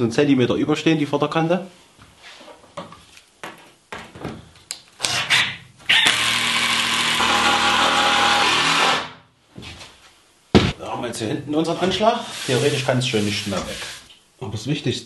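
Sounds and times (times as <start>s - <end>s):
cordless driver driving screw into wood: 5.0s - 9.1s.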